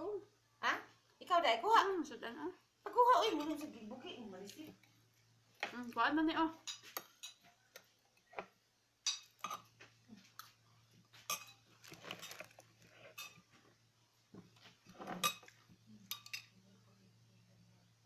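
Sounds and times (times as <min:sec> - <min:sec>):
faint low hum: 0:00.0 - 0:18.0
cutlery clinking on ceramic plate: 0:06.6 - 0:07.5, 0:09.0 - 0:09.8, 0:11.2 - 0:12.5, 0:15.0 - 0:16.6.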